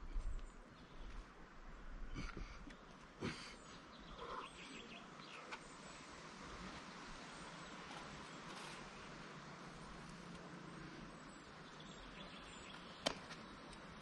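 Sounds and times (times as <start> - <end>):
faint bird chirps: 2.1 - 6.0.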